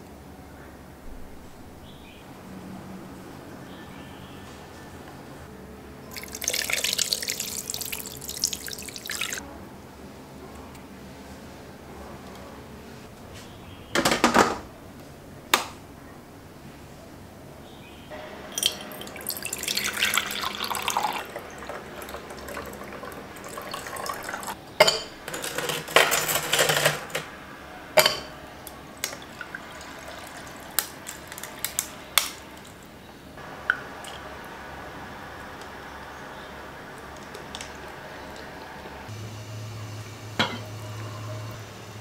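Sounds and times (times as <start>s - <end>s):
milk pouring over ice: 6.1s - 9.4s, 18.5s - 24.6s, 29.0s - 32.8s
ice cubes clinking into glass: 18.6s - 22.9s, 23.5s - 27.3s.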